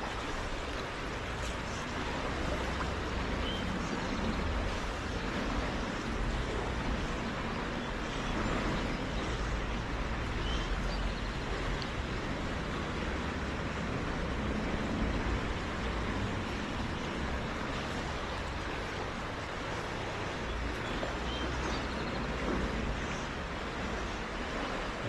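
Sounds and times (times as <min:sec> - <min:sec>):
river water rushing: 0:00.0 - 0:25.0.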